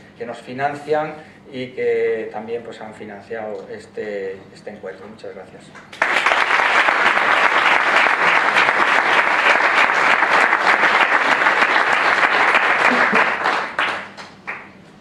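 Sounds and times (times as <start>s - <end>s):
audience applause: 5.9s - 14.7s.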